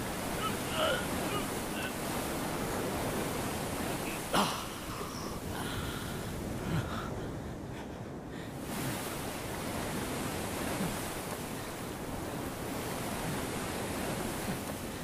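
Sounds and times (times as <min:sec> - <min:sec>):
surf breaking over rocks: 0:00.0 - 0:06.5.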